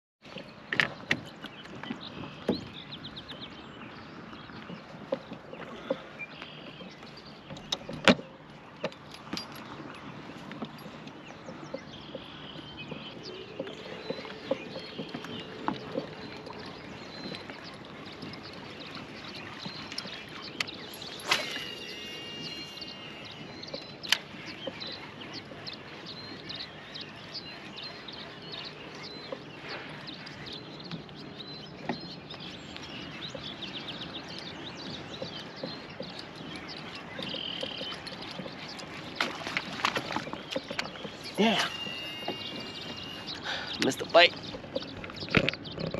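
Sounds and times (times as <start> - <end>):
wildlife chirping: 1.6 - 45.9
brief ringing tone: 21.0 - 23.4, 41.4 - 43.4.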